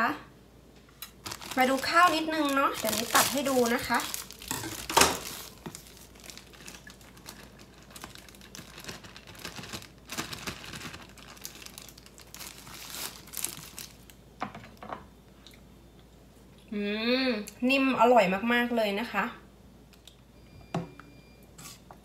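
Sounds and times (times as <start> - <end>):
plastic bags crinkling: 1.0 - 14.2.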